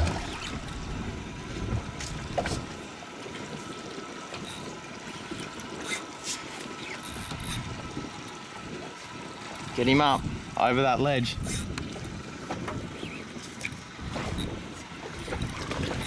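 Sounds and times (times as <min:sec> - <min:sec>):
water sloshing around hull: 0:00.0 - 0:16.0
wind noise: 0:07.3 - 0:16.0.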